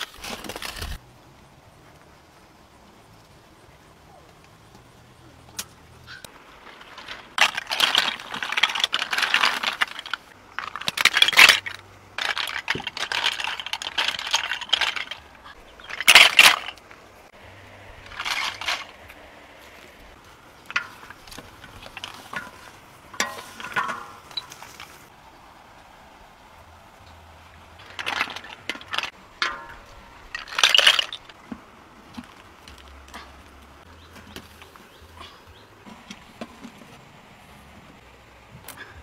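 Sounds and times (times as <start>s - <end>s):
snail shells clattering in a wok: 6.6s - 16.8s.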